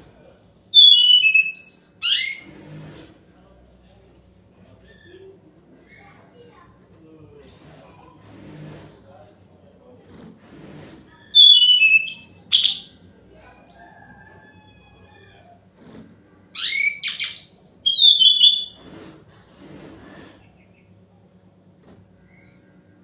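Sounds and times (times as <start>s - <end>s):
flycatcher whistled song: 0.1s - 2.4s, 10.8s - 12.8s, 16.6s - 18.8s.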